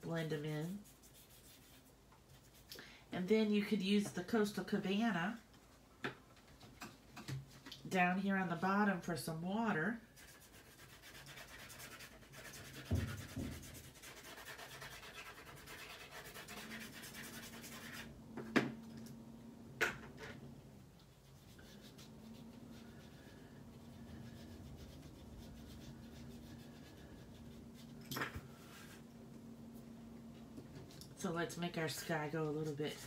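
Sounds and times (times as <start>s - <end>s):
pastel stick rubbing on paper: 0.6s - 2.7s, 10.2s - 18.1s, 21.1s - 27.9s.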